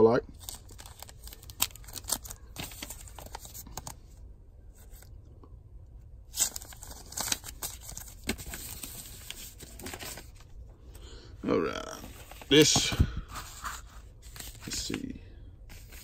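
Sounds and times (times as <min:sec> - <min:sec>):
plastic and paper crinkling: 0:00.3 - 0:04.0, 0:06.3 - 0:10.5.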